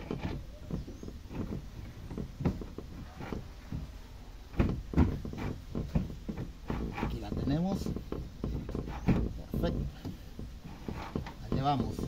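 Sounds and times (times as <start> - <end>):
tool knocking and scraping metal: 0.0 - 12.0.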